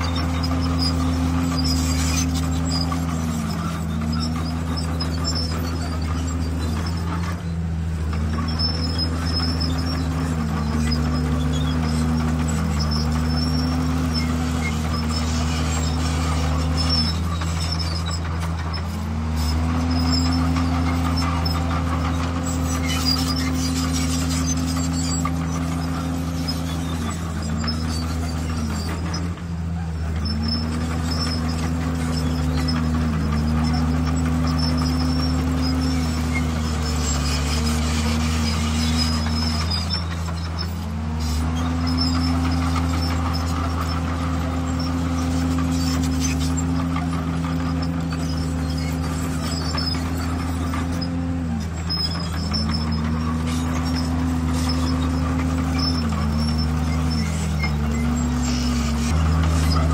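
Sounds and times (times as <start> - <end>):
bulldozer diesel engine straining: 0.0 - 59.9.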